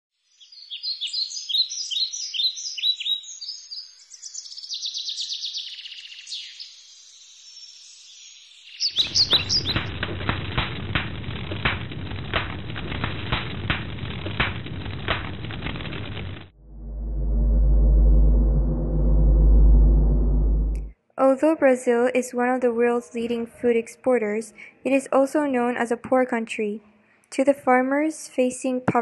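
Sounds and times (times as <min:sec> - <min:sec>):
birds chirping and trilling: 0:00.4 - 0:09.9
forest fire crackling: 0:09.0 - 0:16.6.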